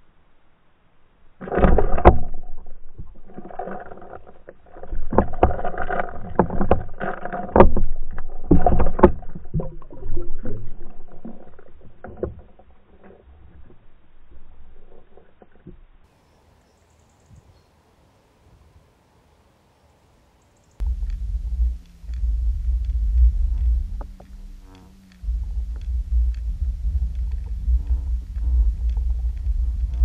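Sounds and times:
muffled water rushing: 1.3s - 16.1s, 20.8s - 30.0s.

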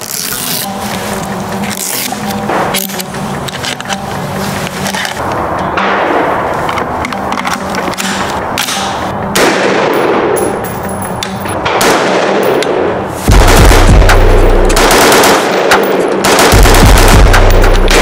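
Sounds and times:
deep bass music: 0.0s - 18.0s
rifle shots: 8.0s - 10.6s, 11.6s - 18.0s.

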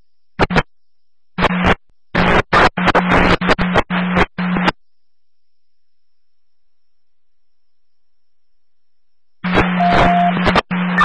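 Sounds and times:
scanner radio static bursts: 0.4s - 0.7s, 1.4s - 4.8s, 9.4s - 11.0s
low steady hum: 3.0s - 11.0s.

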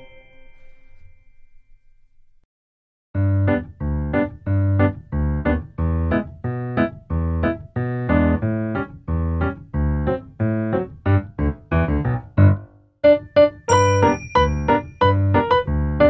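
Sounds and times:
piano-like keyboard tune: 3.2s - 16.0s.

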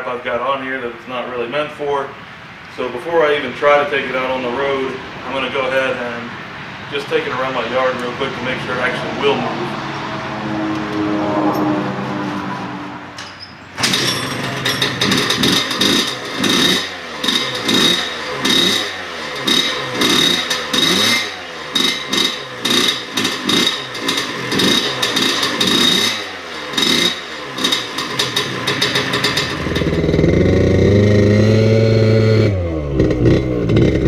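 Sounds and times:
scooter engine revving: 13.8s - 34.0s.

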